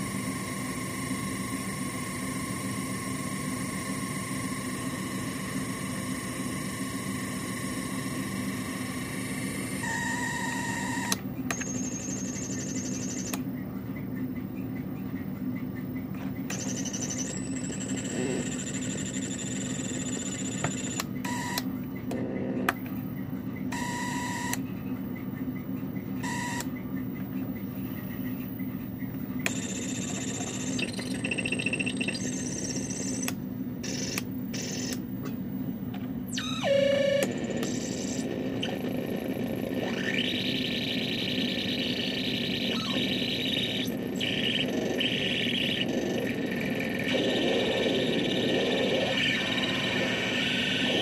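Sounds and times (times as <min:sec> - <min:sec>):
synthesizer low buzzing drone: 0:36.3 - 0:51.0.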